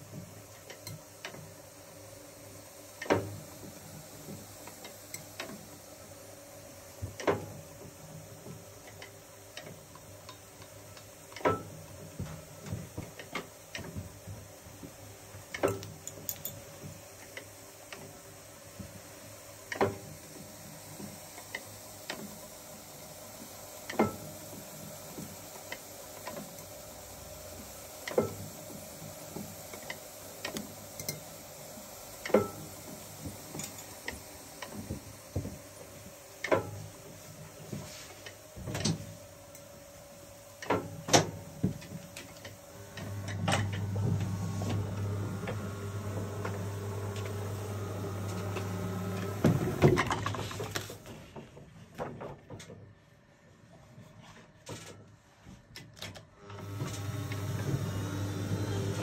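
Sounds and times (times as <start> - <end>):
steady machine hum: 13.5 - 50.2.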